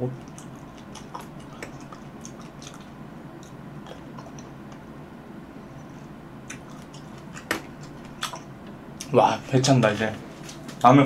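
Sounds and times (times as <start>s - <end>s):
person chewing cherries: 0.1s - 5.0s, 5.6s - 9.1s.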